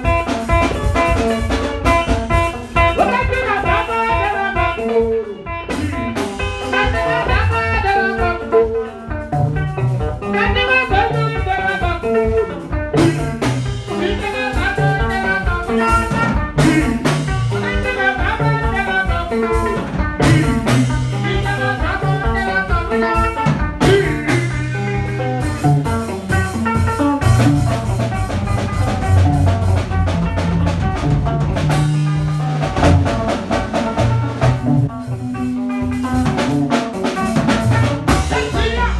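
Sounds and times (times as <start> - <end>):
electric bass line: 0.0 - 38.9
electric guitar melody: 0.0 - 38.9
percussion beat: 0.0 - 38.9.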